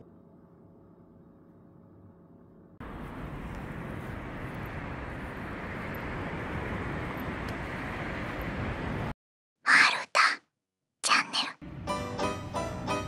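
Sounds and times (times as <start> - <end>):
outdoor ambient rumble: 0.0 - 9.2.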